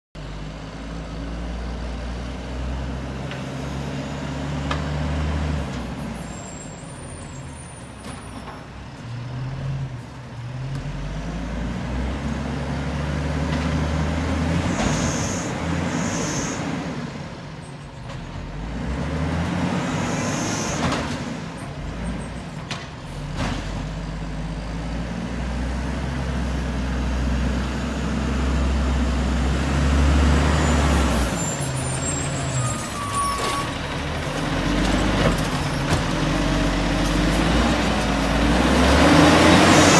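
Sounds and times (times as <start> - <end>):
garbage truck engine revving: 10.5 - 17.4, 18.1 - 39.9
short air hisses: 14.9 - 16.6.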